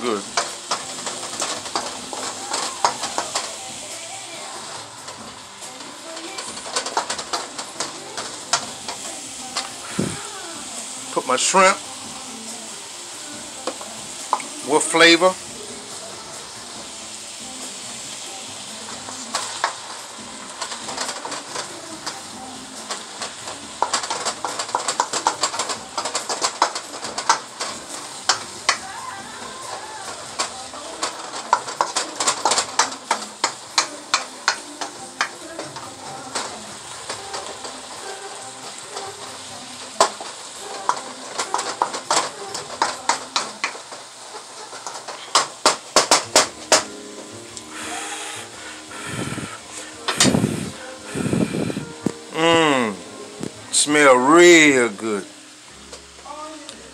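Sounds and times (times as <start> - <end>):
wooden spatula scraping a pan: 0.0 - 10.2, 19.1 - 47.0
food sizzling in a hot pan: 0.0 - 56.9.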